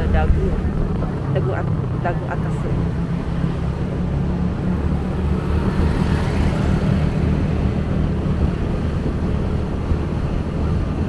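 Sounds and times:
road and traffic noise: 0:00.0 - 0:11.0.

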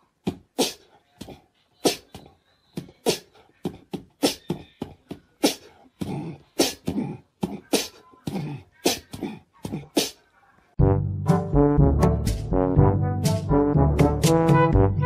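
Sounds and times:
person breathing in sharp bursts: 0:00.5 - 0:02.0, 0:05.4 - 0:08.0.

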